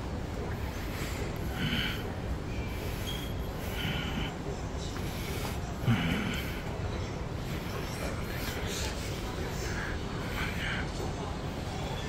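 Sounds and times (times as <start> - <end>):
shopping mall background rumble: 0.0 - 12.0.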